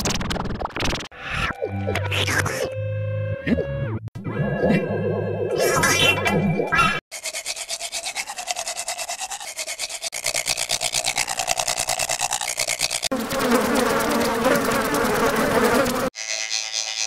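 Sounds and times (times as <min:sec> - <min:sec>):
toothbrush scrubbing: 0:07.1 - 0:16.1.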